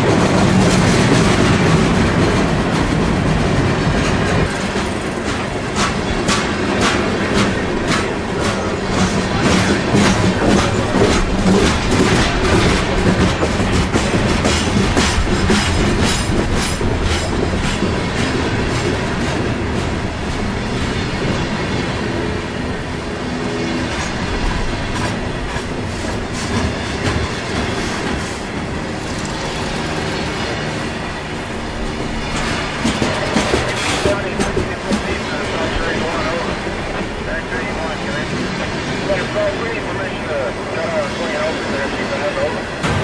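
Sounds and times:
wheels clicking over rail joints: 0.0 - 20.5, 31.5 - 35.3
train wheels rumbling: 0.0 - 43.0.

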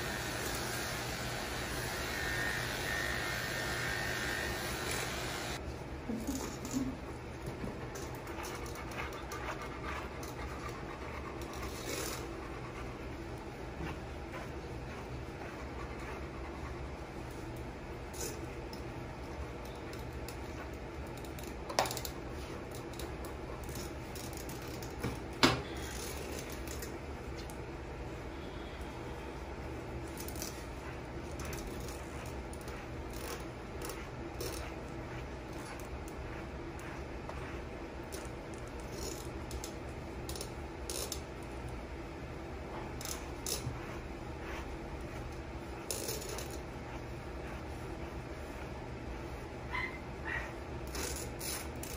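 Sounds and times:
low room hum: 0.0 - 51.9
brush raking through fur: 6.2 - 25.0, 29.2 - 51.9
brush rustling through dog fur: 7.7 - 17.8, 42.3 - 51.4.

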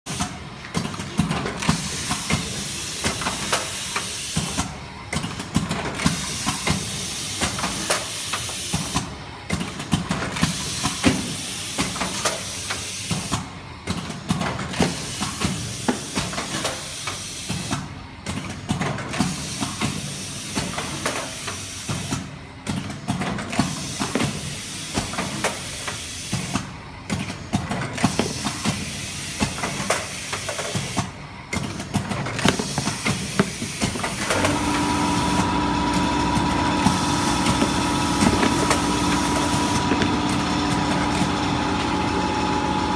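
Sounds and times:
wrapping machine hissing: 32.3 - 42.6.

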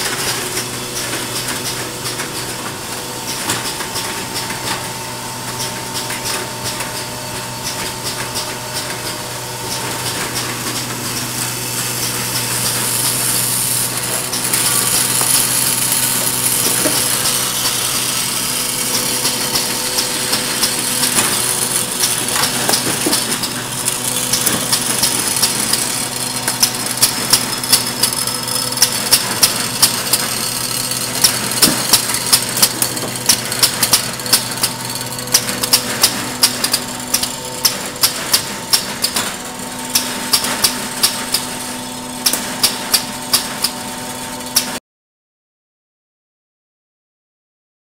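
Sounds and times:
machine hum and hiss: 0.0 - 44.8
mechanism clacking: 5.5 - 41.5.

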